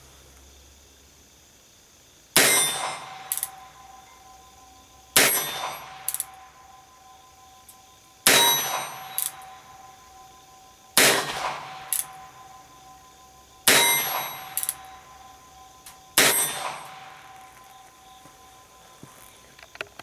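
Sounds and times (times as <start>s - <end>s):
revolver gunshots: 2.4s - 3.8s, 5.2s - 6.5s, 8.2s - 9.6s, 11.0s - 12.6s, 13.7s - 15.1s, 16.2s - 17.4s.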